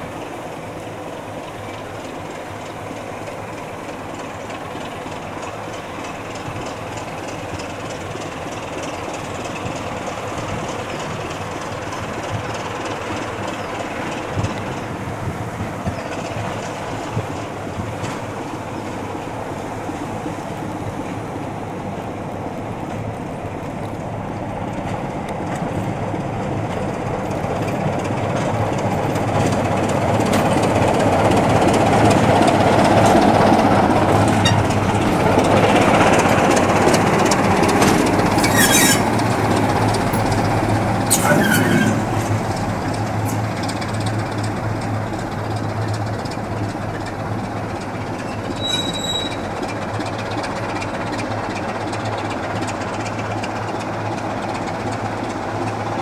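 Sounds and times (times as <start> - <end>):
diesel locomotive engine passing: 0.0 - 56.0
train wheels squealing: 34.3 - 34.7, 38.0 - 39.3, 41.1 - 42.4, 48.2 - 49.8.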